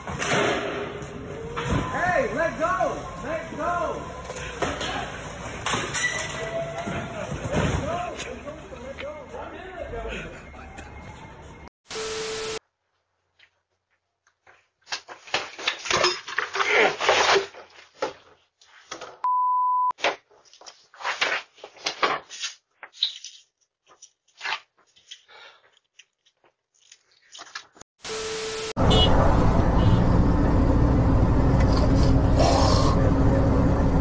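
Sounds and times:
steady beep: 19.3s - 19.9s.

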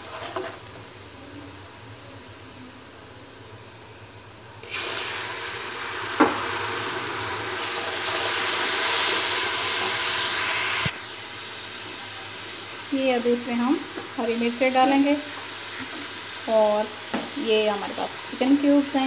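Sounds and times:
onions sizzling in oil: 0.0s - 19.0s.

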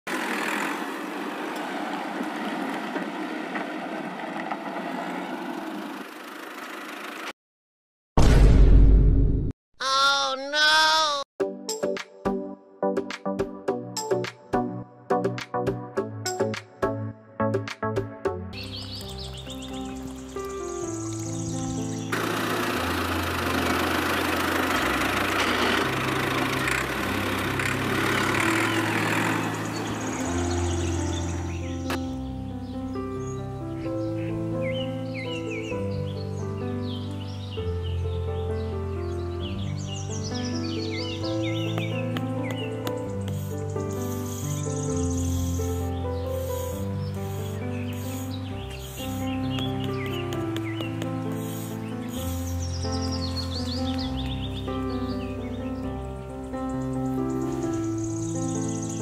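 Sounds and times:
engine running: 0.1s - 7.3s, 20.5s - 32.0s
toy motor whirring: 46.4s - 49.3s, 51.3s - 52.5s.

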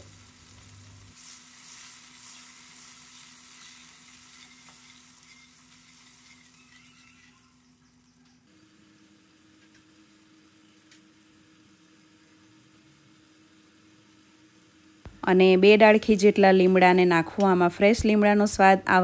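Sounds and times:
water sizzling in hot oil: 0.0s - 7.8s.

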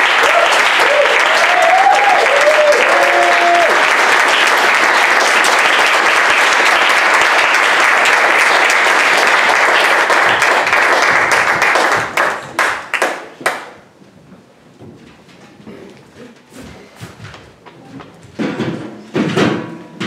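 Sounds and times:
audience applauding: 0.0s - 13.8s.

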